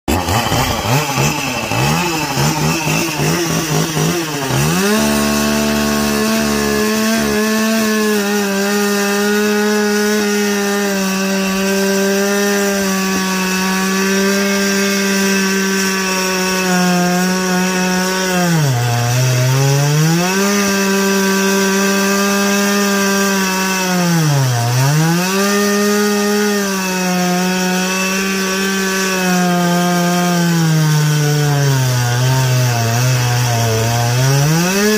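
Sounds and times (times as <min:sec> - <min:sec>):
chainsaw cutting wood: 0:00.1 - 0:34.9.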